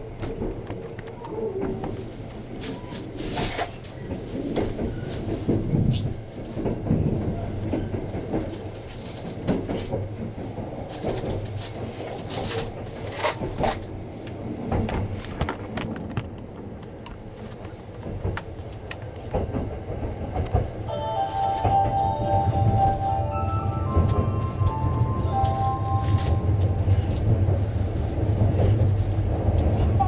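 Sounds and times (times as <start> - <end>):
train running rumble: 0.0 - 30.0
announcement chime: 20.9 - 27.8.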